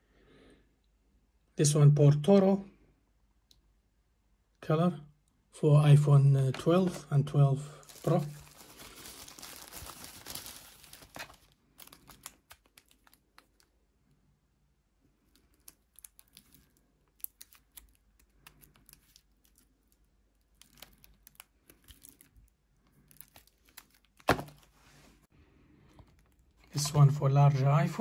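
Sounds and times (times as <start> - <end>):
plastic sleeve crinkling: 7.7 - 13.8, 15.2 - 25.3.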